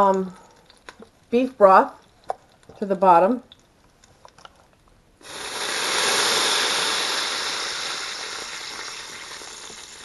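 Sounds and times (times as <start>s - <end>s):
broth hissing in a hot pot: 5.2s - 10.0s.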